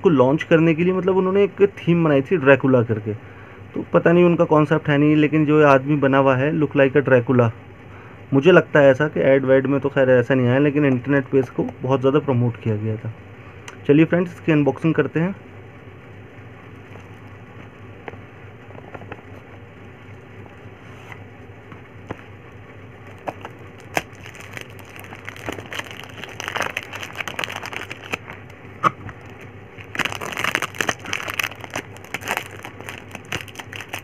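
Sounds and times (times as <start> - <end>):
plastic packaging crinkling: 23.0 - 34.0.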